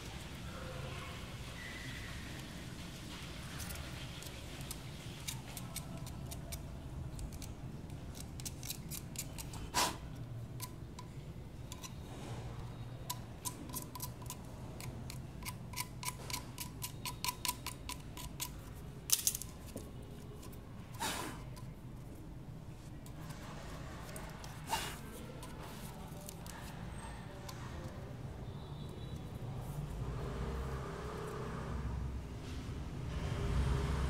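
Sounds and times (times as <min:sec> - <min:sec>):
scissors cutting plastic pipe: 0:04.6 - 0:09.9, 0:13.1 - 0:21.7, 0:24.0 - 0:26.8.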